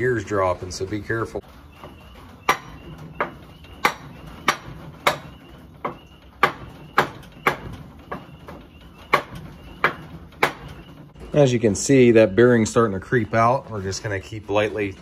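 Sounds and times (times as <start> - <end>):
hammer knocking on wooden block: 2.5 - 8.3, 9.0 - 10.8.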